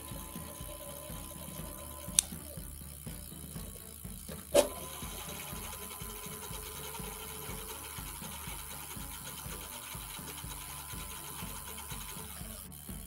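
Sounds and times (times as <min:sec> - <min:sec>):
electric motor whine: 0:00.0 - 0:13.0
sharp click: 0:02.1 - 0:02.5.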